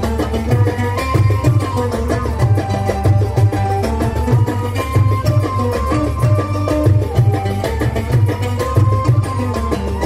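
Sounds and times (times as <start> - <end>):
low hand-drum beats: 0.0 - 10.0.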